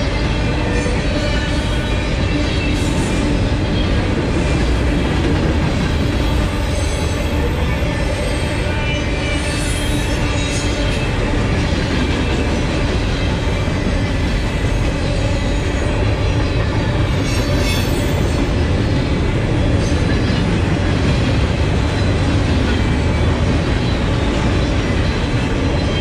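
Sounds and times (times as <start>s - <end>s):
freight train wheels rumbling: 0.0s - 26.0s.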